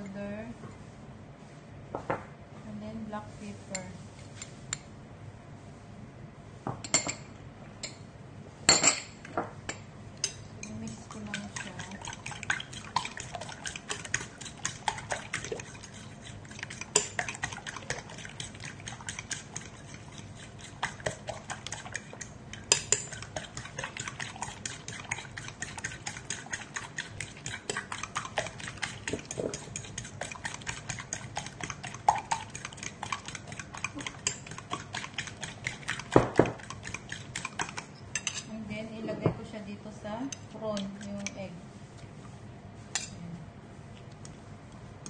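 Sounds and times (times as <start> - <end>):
whisk beating eggs in a bowl: 10.2 - 38.4, 40.3 - 41.4.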